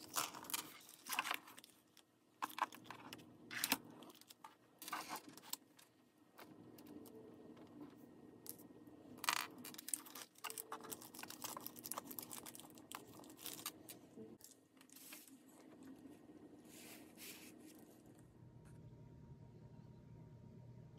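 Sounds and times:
plastic bag crinkling: 9.5 - 15.9.

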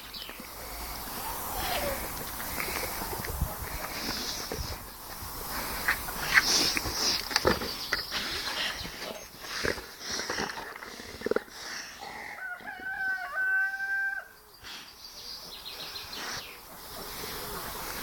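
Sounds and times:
rooster crowing: 12.2 - 14.4.

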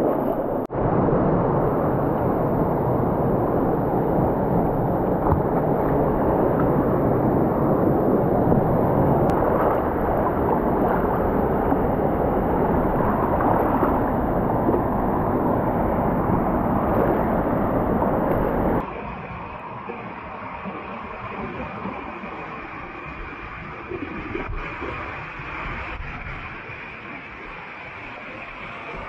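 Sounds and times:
river water rushing: 0.0 - 19.0.

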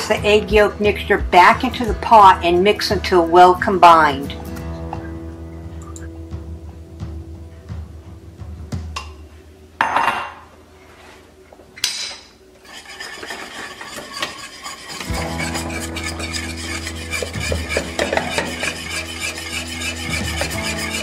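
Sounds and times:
whisk scraping metal pan: 12.6 - 21.0.

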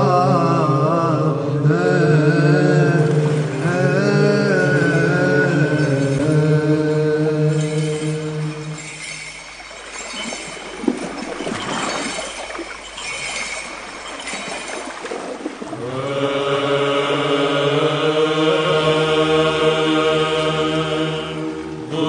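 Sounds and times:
voices chanting long notes: 15.8 - 22.0.

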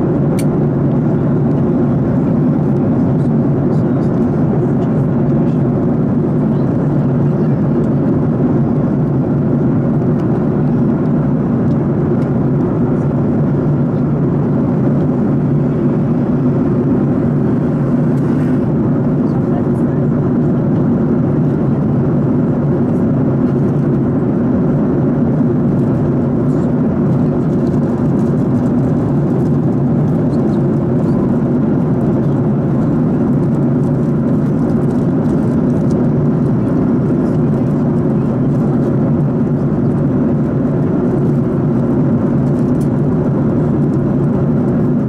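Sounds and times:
airliner cabin noise: 0.0 - 45.0.

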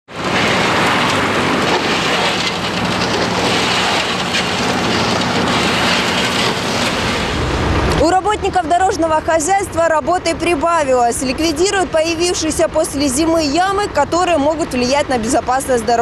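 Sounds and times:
asphalt pouring down chute: 0.1 - 10.3
truck engine humming: 0.1 - 16.0.

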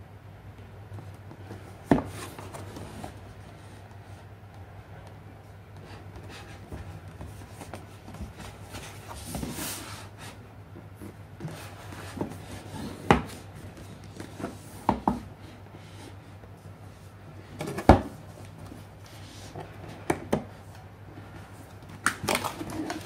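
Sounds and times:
cardboard rubbing and scraping: 5.8 - 10.4, 11.0 - 15.0.

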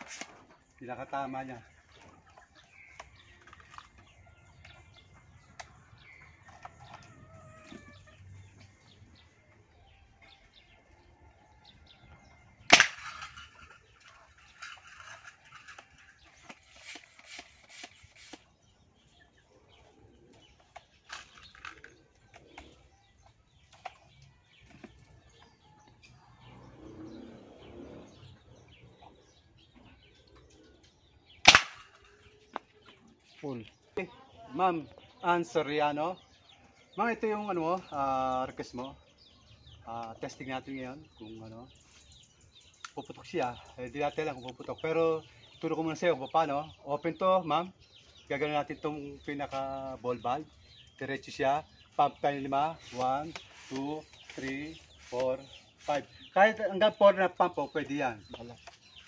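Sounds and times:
faint chicken clucks: 0.1 - 12.7
toy rifle shots: 12.7 - 13.4, 31.4 - 32.0.

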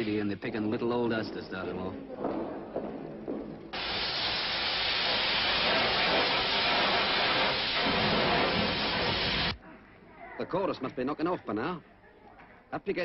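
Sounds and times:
loud steady hiss: 0.0 - 1.8, 3.2 - 9.6.

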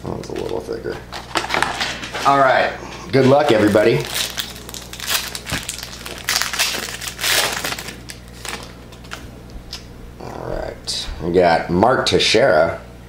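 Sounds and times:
foil wrapper tearing and crinkling: 3.2 - 9.2.

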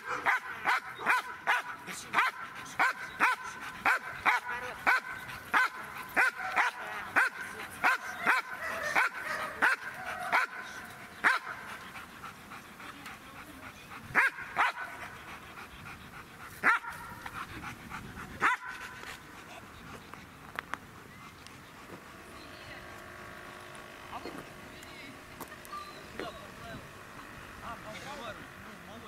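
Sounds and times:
dog barking: 0.0 - 11.6, 14.1 - 15.0, 16.6 - 17.2, 18.4 - 18.8.

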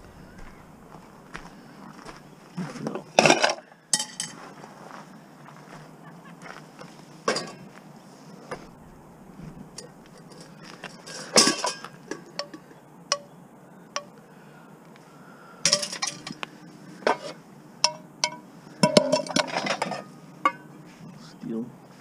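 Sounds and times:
scrap metal clanking: 7.3 - 7.6, 9.4 - 13.3, 15.7 - 16.4, 17.0 - 20.7.

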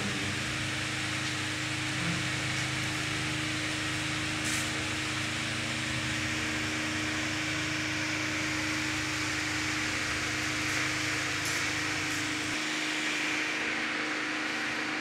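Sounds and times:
mechanical hum with hiss: 0.0 - 15.0.

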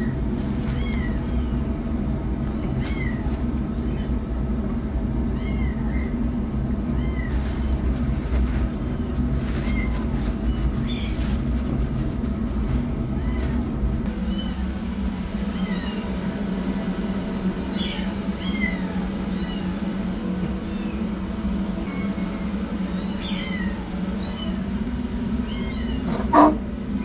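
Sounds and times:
steady low hum: 0.0 - 27.0
kitten mewing: 25.5 - 26.7.

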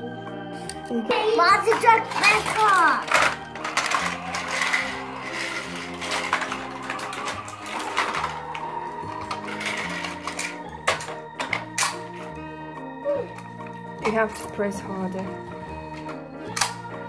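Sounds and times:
organ-like background music: 0.0 - 17.0
plastic toy trucks rattling: 1.4 - 12.3.

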